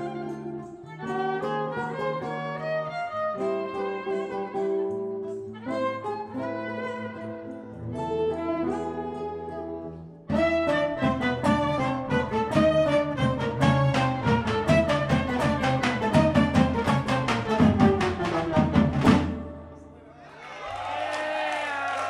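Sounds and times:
violin melody: 0.0 - 20.0
guitar: 0.0 - 20.9
bass: 7.3 - 20.0
drum strikes: 12.5 - 19.7.

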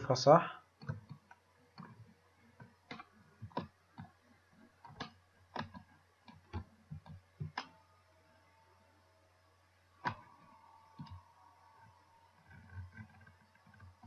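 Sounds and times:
mouse and keyboard clicking: 4.8 - 7.8.

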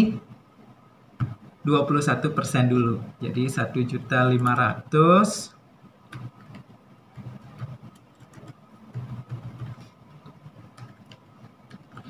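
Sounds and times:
keyboard and mouse clicks: 6.1 - 12.0.

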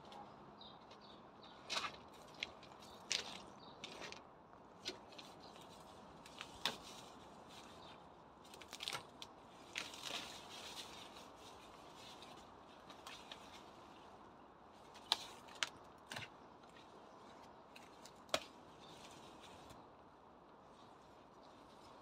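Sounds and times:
stems snapping and tearing: 4.8 - 7.2, 8.4 - 11.2, 14.8 - 19.8
leaves rustling: 4.8 - 22.0.

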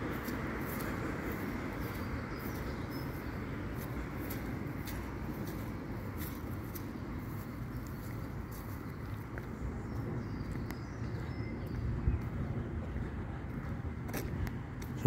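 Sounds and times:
low wind rumble: 0.0 - 15.0.

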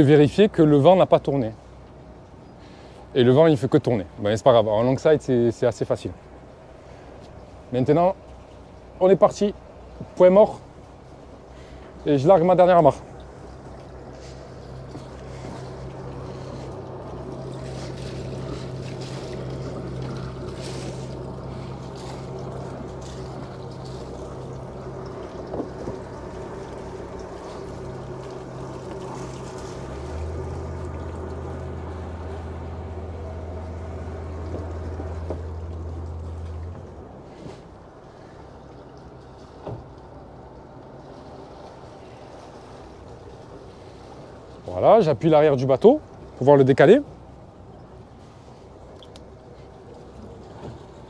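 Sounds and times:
boat engines idling: 0.0 - 51.0
low steady drone: 8.5 - 44.6.

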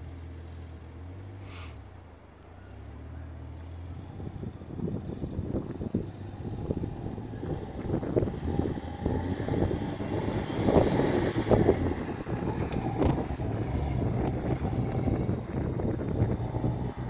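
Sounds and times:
tyres skidding on dirt: 1.0 - 17.0
engine revving: 3.0 - 17.0
wind on microphone: 4.0 - 17.0.

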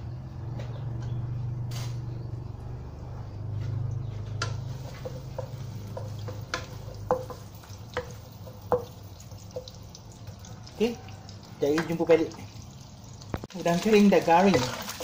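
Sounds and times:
spatula tapping pan: 4.3 - 10.8
shrimp frying in oil: 4.4 - 15.0.

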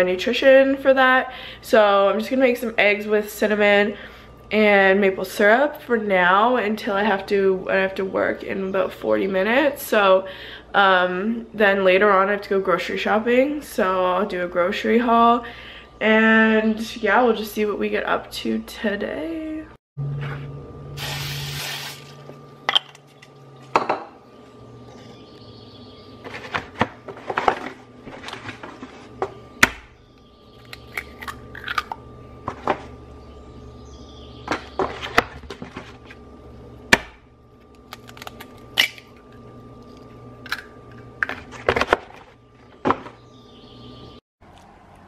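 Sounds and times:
faint hum: 0.0 - 45.0.

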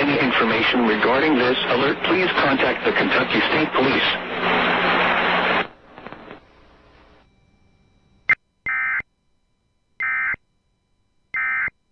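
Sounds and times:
buzzing digital tone bursts: 7.2 - 9.0.

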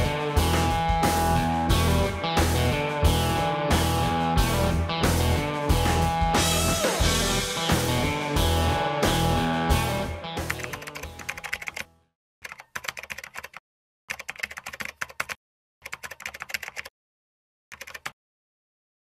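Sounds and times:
rock music: 0.0 - 11.2
rapid keyboard clicking: 10.4 - 16.9, 17.7 - 18.2.

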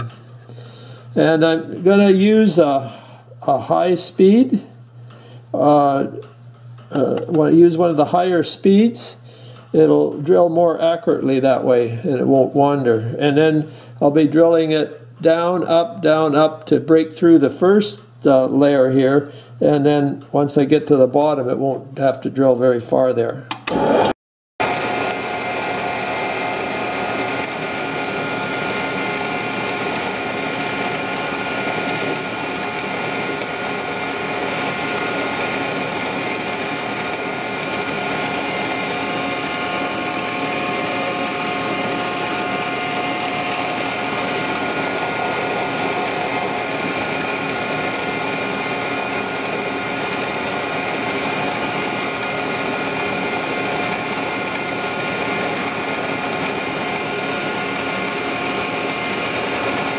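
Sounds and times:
drill press motor whine: 0.0 - 21.3, 22.9 - 59.9.

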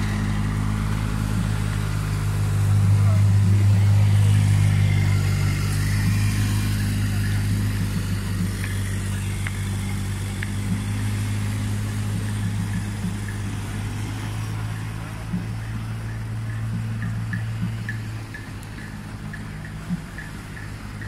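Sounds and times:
faint voices of people passing: 0.0 - 21.0
low engine hum: 0.0 - 21.0.

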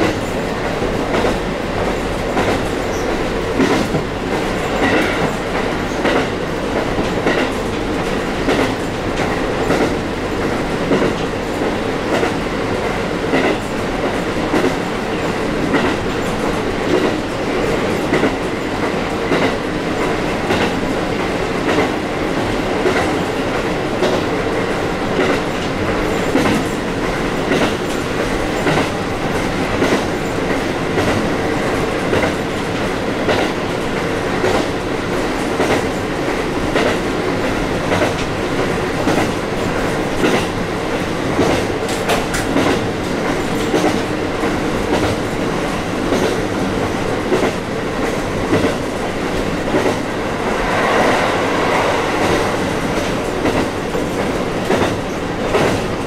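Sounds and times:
diesel railcar engine drone: 47.8 - 55.7.

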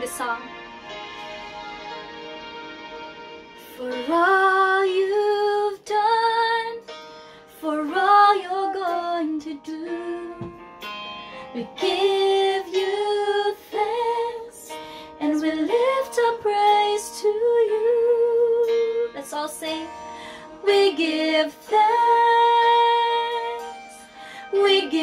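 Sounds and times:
instrumental accompaniment: 0.0 - 5.5
woman singing worship song: 3.7 - 6.8, 7.6 - 10.6, 11.5 - 20.0, 20.6 - 25.0.

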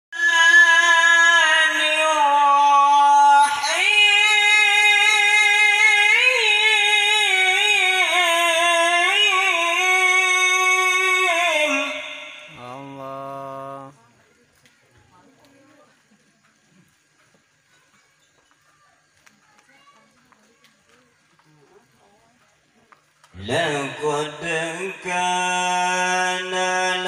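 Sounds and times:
person singing unaccompanied: 0.1 - 14.2, 23.4 - 27.0.

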